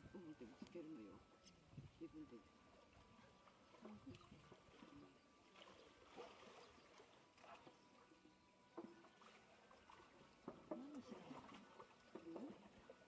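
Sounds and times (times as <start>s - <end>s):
faint water sloshing: 0.0s - 13.0s
soft splashes: 2.4s - 13.0s.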